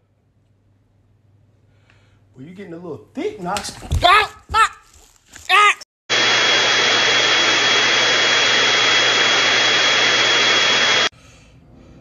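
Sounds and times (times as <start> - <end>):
electric blower whining rush of air: 6.1 - 11.1.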